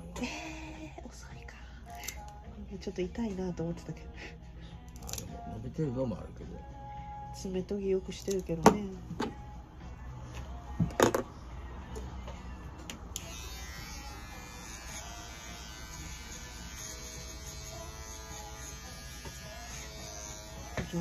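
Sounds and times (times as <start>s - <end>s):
pet clipper buzzing: 13.1s - 21.0s.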